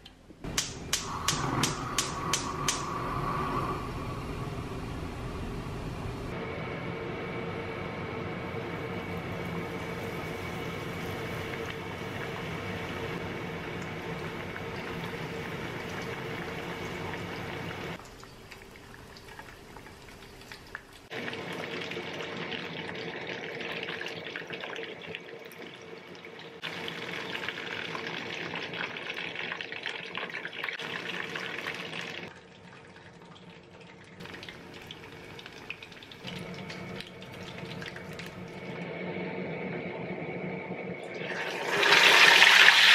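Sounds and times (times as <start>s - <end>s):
steady hum: 0.2s - 18.0s, 34.6s - 41.3s
chicken deep-frying in oil: 8.4s - 40.2s, 40.9s - 42.9s.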